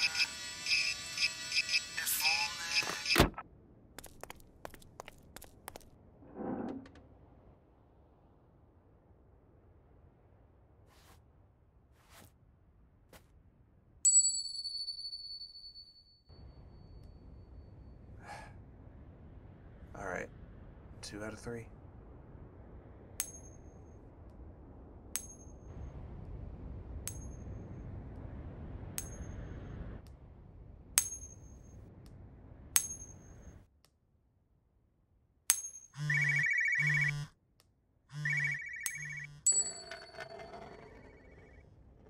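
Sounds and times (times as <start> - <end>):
phone ringing: 38.2 - 41.6.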